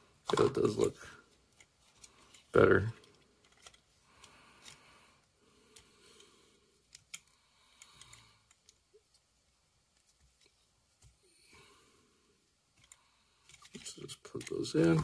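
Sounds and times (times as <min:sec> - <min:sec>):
soft rustling: 0:00.0 - 0:07.2, 0:08.1 - 0:11.5
faint plastic clicks: 0:01.3 - 0:09.3, 0:12.7 - 0:15.0.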